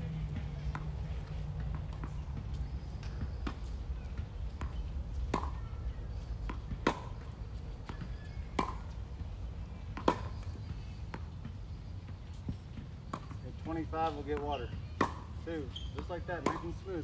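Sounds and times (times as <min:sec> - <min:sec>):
tennis ball racquet pops: 0:05.3 - 0:05.6, 0:06.5 - 0:07.2, 0:16.4 - 0:16.8.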